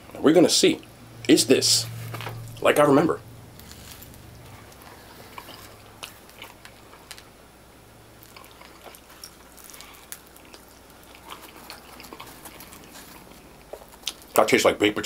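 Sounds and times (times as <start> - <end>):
person chewing food: 3.6 - 7.3, 8.1 - 14.4.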